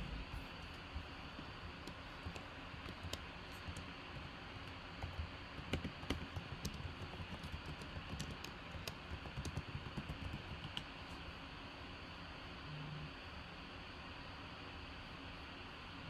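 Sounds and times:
computer keyboard typing: 1.4s - 11.2s.

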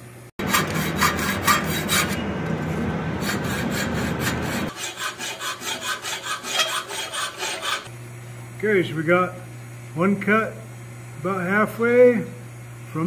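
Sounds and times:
hacksaw cutting steel: 0.4s - 2.2s, 3.2s - 7.9s.

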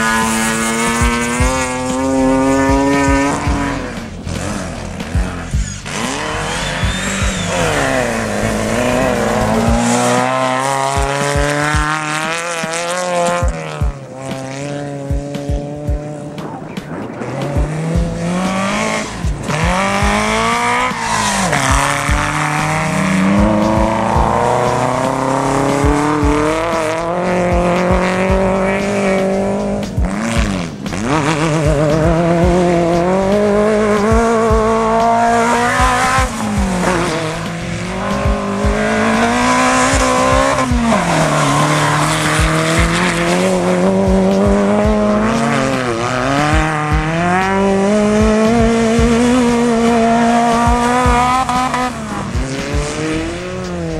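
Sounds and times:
race vehicle engines revving: 0.0s - 53.9s
vehicles passing by: 0.0s - 53.9s.

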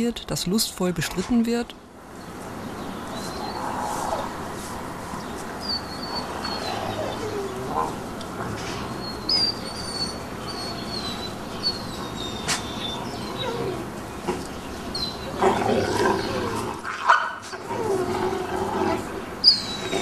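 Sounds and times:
wolf pups whining and yelping: 3.1s - 4.4s, 5.6s - 14.2s, 14.9s - 18.6s, 19.4s - 20.0s.

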